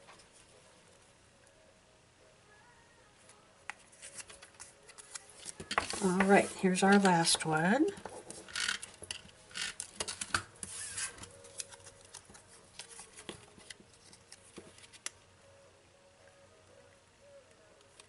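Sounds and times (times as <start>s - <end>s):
paper rubbing and rustling: 3.8s - 7.1s, 10.6s - 15.1s.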